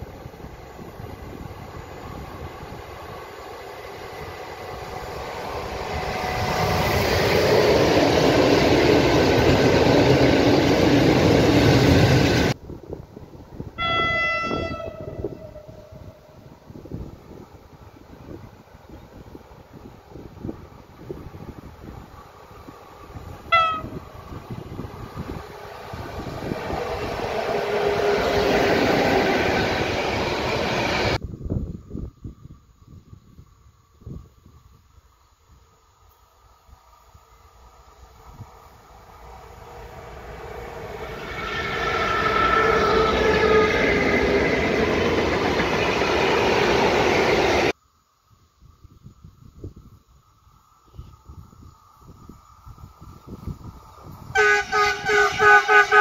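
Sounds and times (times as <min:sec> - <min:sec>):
locomotive hum: 0:00.0 - 0:31.2, 0:37.7 - 0:47.8
train wheels on rails: 0:00.0 - 0:31.2, 0:36.8 - 0:47.8
distant train horn: 0:04.2 - 0:07.1, 0:13.8 - 0:16.5, 0:23.4 - 0:24.2, 0:26.8 - 0:29.5, 0:41.2 - 0:44.6, 0:54.3 - 0:56.0.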